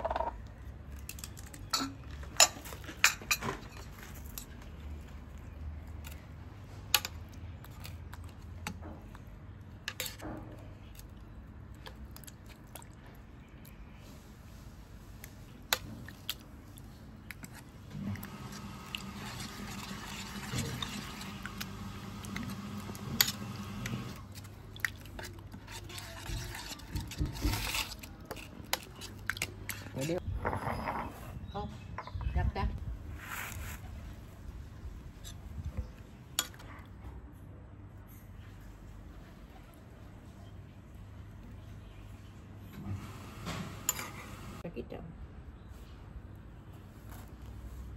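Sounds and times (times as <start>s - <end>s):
metal spoon stirring thick sauce: 17.2s - 30.2s.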